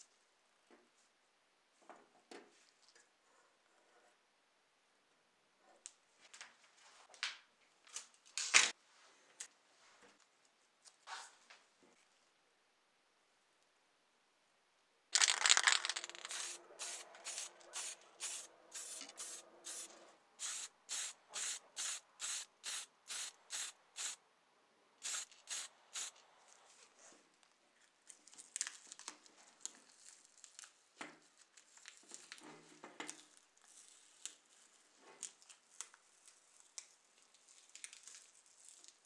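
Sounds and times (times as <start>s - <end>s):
spray paint hissing: 16.0s - 24.2s, 25.0s - 26.2s.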